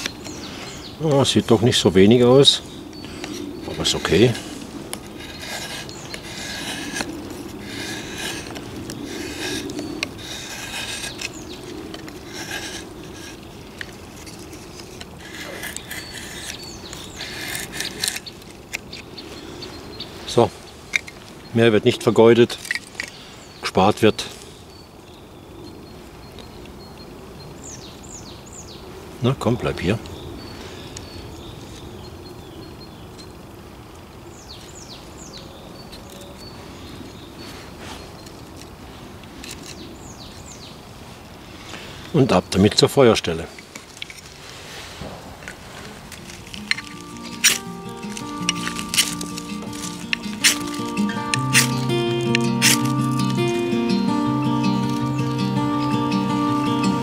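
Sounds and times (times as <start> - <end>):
low outdoor background noise: 0.0 - 57.0
knife scraping wood: 3.2 - 19.1, 45.9 - 53.6
bird downward-sliding calls: 46.5 - 57.0.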